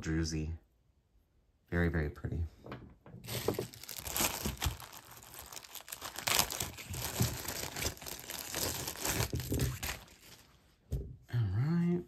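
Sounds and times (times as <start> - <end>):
packaging crinkling and rustling: 3.2 - 10.6.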